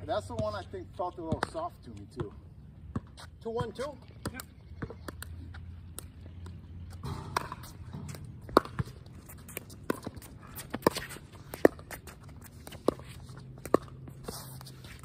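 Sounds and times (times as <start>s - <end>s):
shoes shuffling on hard court: 0.2s - 15.0s
paddles hitting plastic ball: 7.3s - 14.2s.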